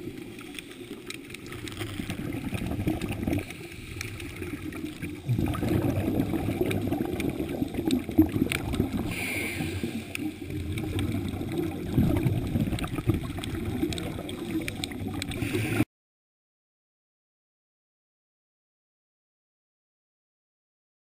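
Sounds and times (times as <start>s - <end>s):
scuba diver exhaling bubbles underwater: 1.4s - 15.8s.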